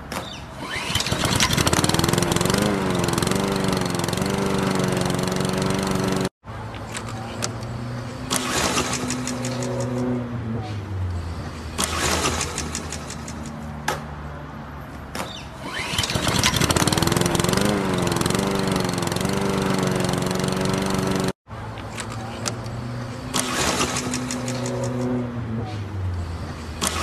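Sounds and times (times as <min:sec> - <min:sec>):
lawnmower engine running: 0:00.6 - 0:10.2, 0:15.6 - 0:25.2
pull-cord yanks: 0:15.3 - 0:17.1.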